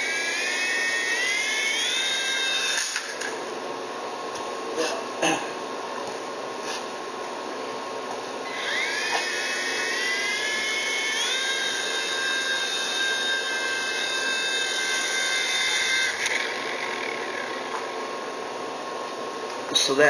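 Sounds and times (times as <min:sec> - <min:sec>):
electric motors whining: 0:00.0 - 0:19.9.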